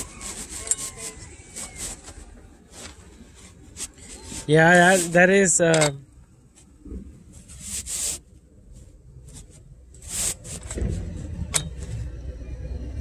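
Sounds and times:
phone rustling against fabric: 0.0s - 5.4s, 6.5s - 11.2s
vehicle engine rumble: 0.0s - 13.0s.

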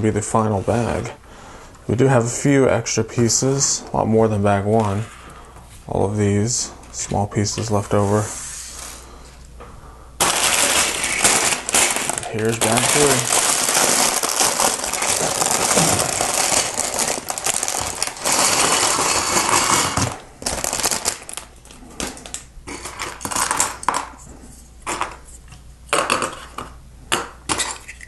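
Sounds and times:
plastic bag crinkling: 10.2s - 23.9s.

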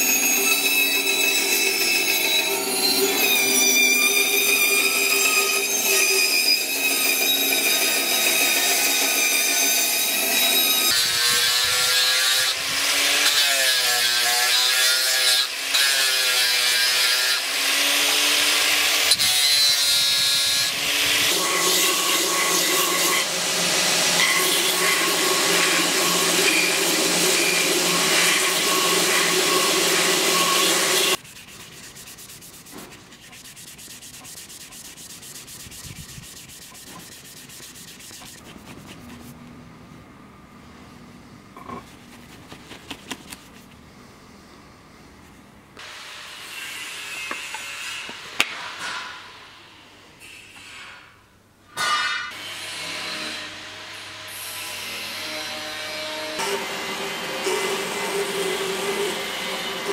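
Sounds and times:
bandsaw cutting wood: 20.6s - 38.6s
belt grinder sanding wood: 21.3s - 39.4s
hand rubbing on wood: 31.1s - 39.4s, 41.6s - 43.8s.

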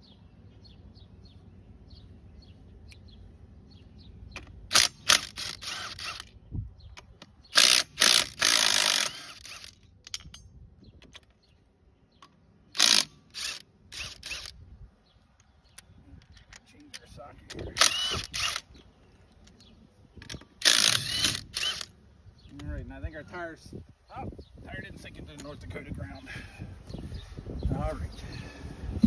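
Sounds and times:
cordless impact wrench bursts: 4.7s - 6.3s, 7.5s - 9.8s, 12.8s - 14.6s, 17.7s - 18.7s, 20.6s - 21.9s.

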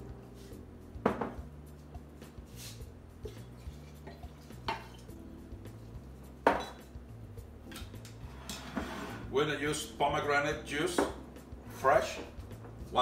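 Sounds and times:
glassware clinking on counter: 6.5s - 6.8s.

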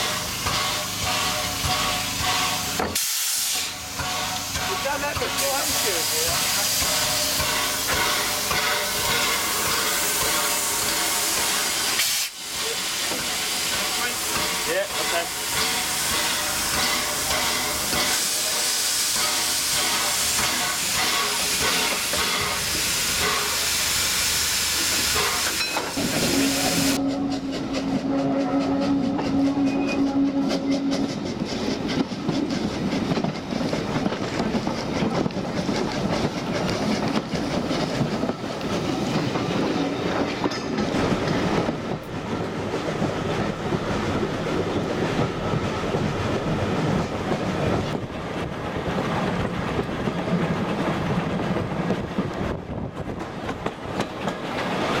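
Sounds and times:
steam locomotive hissing: 0.0s - 55.0s
train wheels clicking over rail joints: 0.0s - 55.0s
steady held note: 26.3s - 31.6s.

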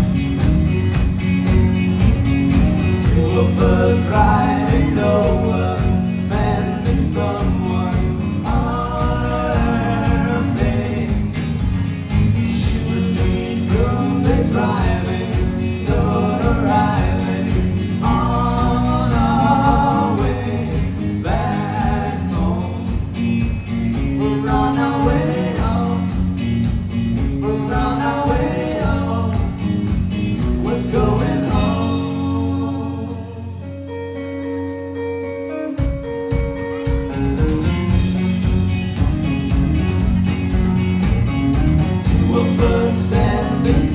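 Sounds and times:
drums: 0.0s - 43.9s
live rock band playing: 0.0s - 43.9s
lead vocal singing: 2.8s - 34.0s, 41.8s - 43.9s
held guitar notes ringing: 33.3s - 41.5s.

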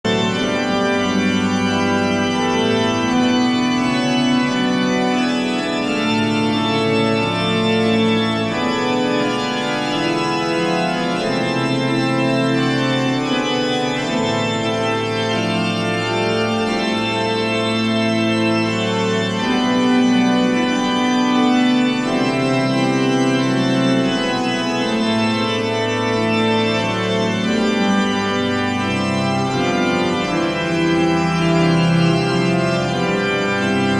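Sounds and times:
church organ chords: 0.1s - 33.9s.

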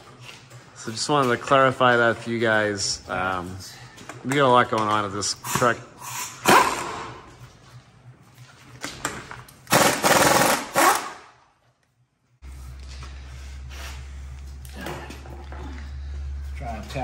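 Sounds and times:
steady low hum: 0.0s - 17.0s
power tool hammering on metal: 9.7s - 11.3s.

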